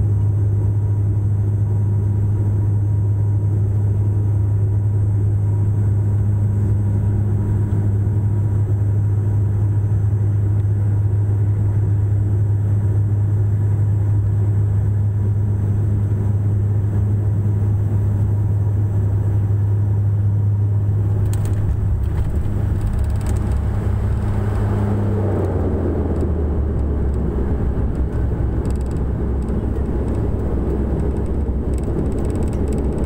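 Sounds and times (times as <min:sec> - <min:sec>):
propeller drone: 0:00.0 - 0:33.0
rattles: 0:21.1 - 0:24.8, 0:27.8 - 0:33.0.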